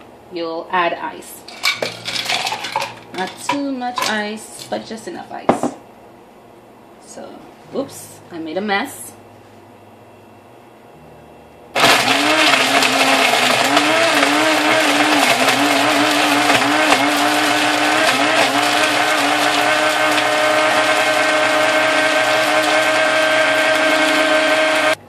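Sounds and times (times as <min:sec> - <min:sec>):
blender crushing ice: 0:01.6 - 0:03.4, 0:11.8 - 0:25.0.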